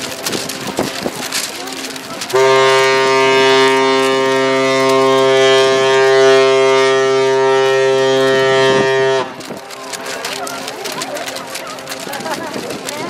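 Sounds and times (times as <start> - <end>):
ship's horn blast: 2.3 - 9.4.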